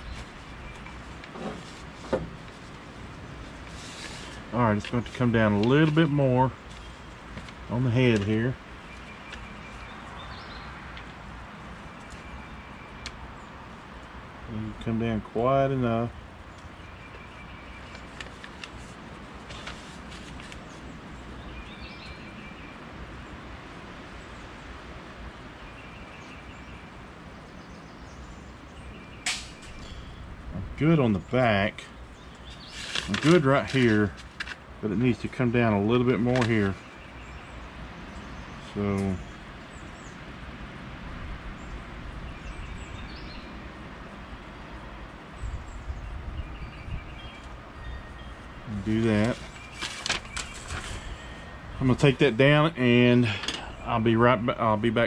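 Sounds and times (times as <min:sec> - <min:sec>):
bird chirping: 0:00.0 - 0:01.8, 0:04.9 - 0:11.0, 0:16.4 - 0:18.6, 0:20.6 - 0:22.9, 0:25.6 - 0:30.3, 0:31.1 - 0:33.4, 0:34.9 - 0:40.2, 0:41.6 - 0:43.7, 0:45.4 - 0:54.8
wind noise on microphone: 0:45.4 - 0:48.2.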